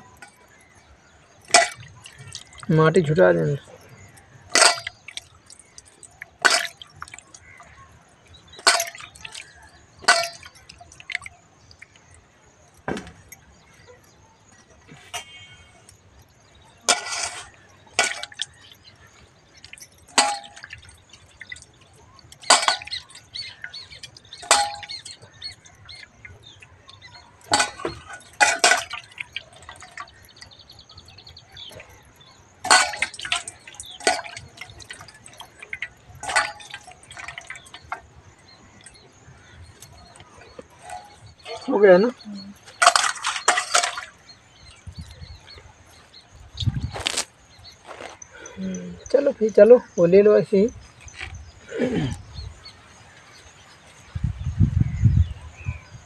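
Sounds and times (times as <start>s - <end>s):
water splashing into steel bowl: 1.4s - 12.1s, 16.9s - 30.5s, 32.6s - 45.2s.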